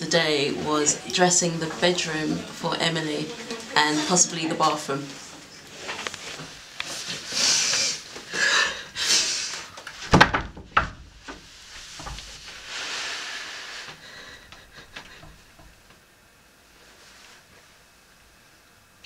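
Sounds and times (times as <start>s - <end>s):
woman breathing heavily: 7.2s - 9.7s, 13.5s - 15.6s
knocks against wooden door: 10.0s - 12.4s.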